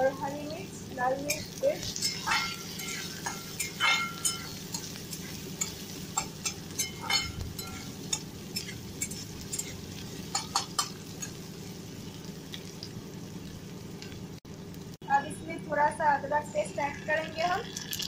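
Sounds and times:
onions sizzling in oil: 0.0s - 18.0s
metal spatula scraping a pan: 1.2s - 11.4s.

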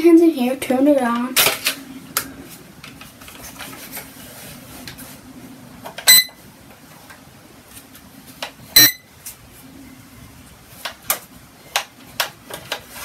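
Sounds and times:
plastic handling noise: 1.1s - 9.5s, 10.7s - 13.0s
short sharp ringing beeps: 6.1s - 6.4s, 8.8s - 9.1s.

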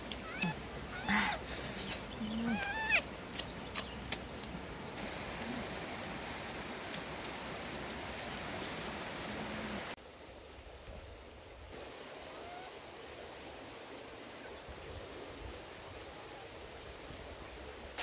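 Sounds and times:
outdoor background hiss: 0.0s - 18.0s
young monkey crying: 0.2s - 3.1s.

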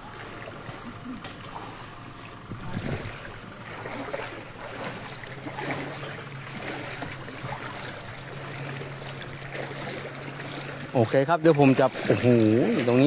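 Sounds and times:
floodwater rushing: 0.0s - 13.0s
low steady hum: 0.0s - 13.0s.

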